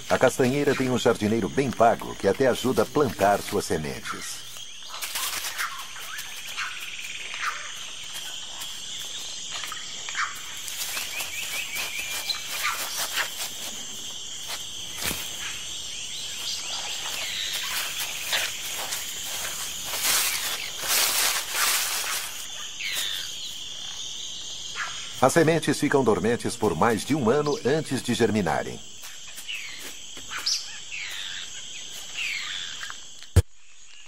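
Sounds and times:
animal calls: 0:00.0 - 0:14.1
dry leaves rustling and crackling: 0:00.0 - 0:23.7
insects buzzing: 0:00.0 - 0:34.0.

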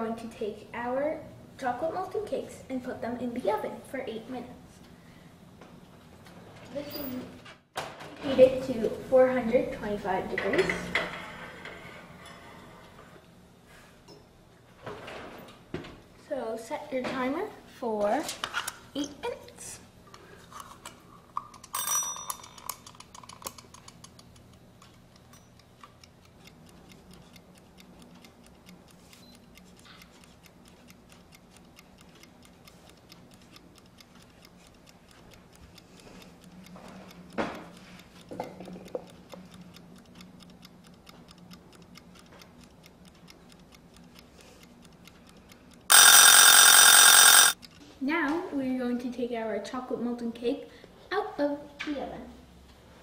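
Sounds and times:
kitchen timer ticking: 0:21.6 - 0:47.7
timer bell ringing: 0:21.8 - 0:22.6, 0:45.9 - 0:47.6
timer dial clicking: 0:21.8 - 0:47.8.

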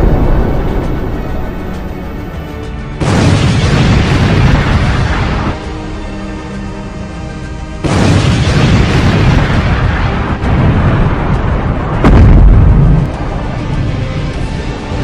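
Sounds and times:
soundtrack music holding a chord: 0:00.0 - 0:15.0
booming sound effects: 0:12.0 - 0:13.0.

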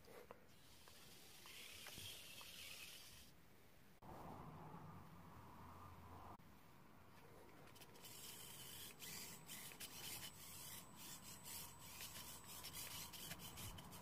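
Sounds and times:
toy car motor whirring: 0:00.5 - 0:03.4, 0:07.7 - 0:14.0.

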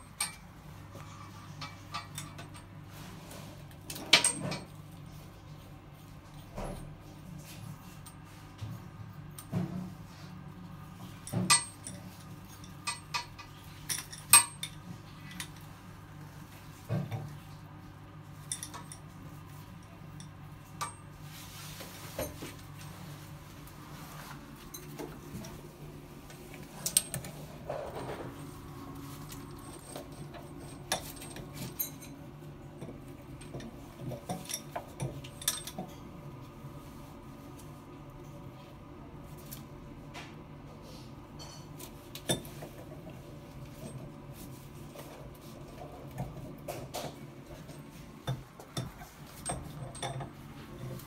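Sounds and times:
metal tools clinking: 0:18.4 - 0:19.2, 0:34.3 - 0:36.0.

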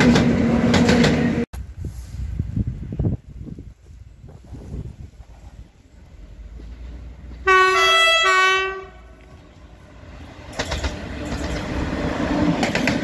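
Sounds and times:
train passing rumble: 0:00.0 - 0:13.0
locomotive horn blasts: 0:07.4 - 0:09.2
wheels clattering over rail joints: 0:09.3 - 0:13.0.

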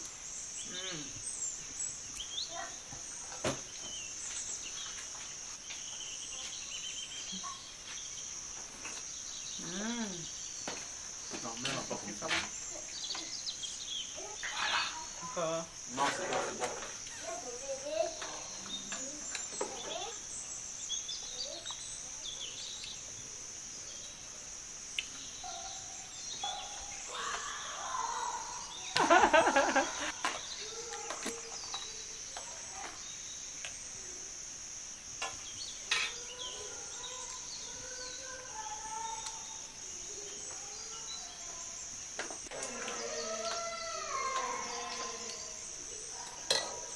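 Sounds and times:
crickets chirring: 0:00.0 - 0:46.9
faint voices: 0:35.9 - 0:46.9.

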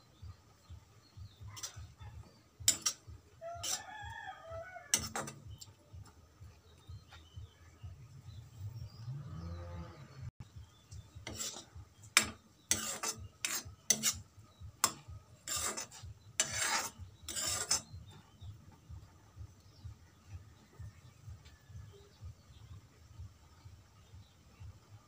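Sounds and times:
metal spoon scraping pan: 0:00.6 - 0:05.8, 0:11.1 - 0:18.5.

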